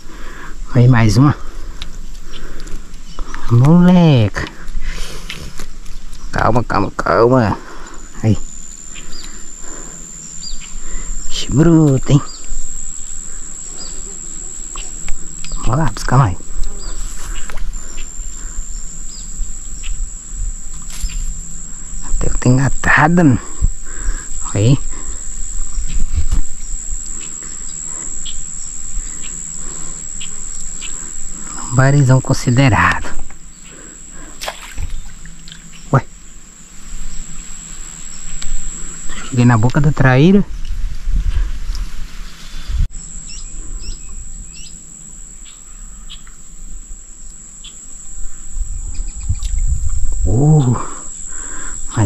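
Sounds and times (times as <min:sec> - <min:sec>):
high-pitched insect drone: 0:00.0 - 0:52.0
bird chirps: 0:08.4 - 0:11.3, 0:12.2 - 0:15.8, 0:16.7 - 0:20.1, 0:43.2 - 0:44.8
low wind rumble on microphone: 0:40.5 - 0:42.9, 0:48.5 - 0:50.4.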